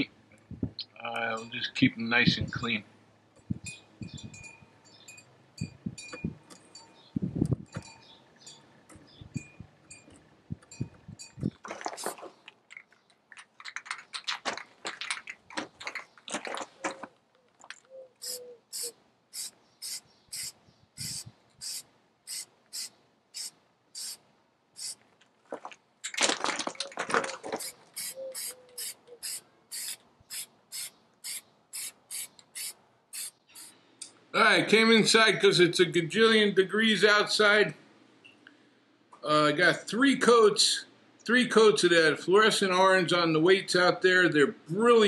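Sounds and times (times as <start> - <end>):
aerosol spray can hissing: 18.2 - 24.2, 24.8 - 25.0, 27.6 - 33.7.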